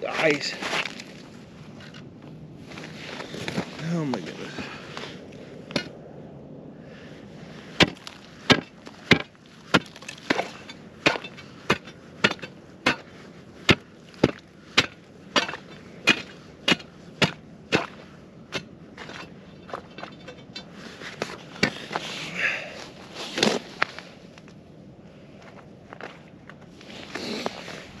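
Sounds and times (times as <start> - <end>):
chopping strikes on ice: 7.8 - 13.1.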